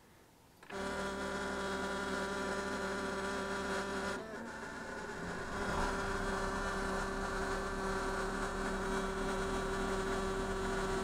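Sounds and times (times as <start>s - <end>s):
diesel engine idling: 5.0s - 11.0s.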